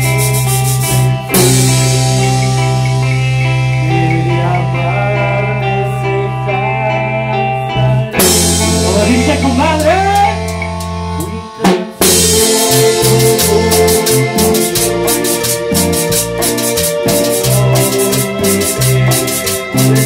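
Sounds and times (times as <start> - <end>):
keyboard chords: 0.0 - 20.0
live band playing: 0.0 - 20.0
sliding lead melody: 0.0 - 20.0
drum hit: 8.2 - 10.6, 11.8 - 20.0.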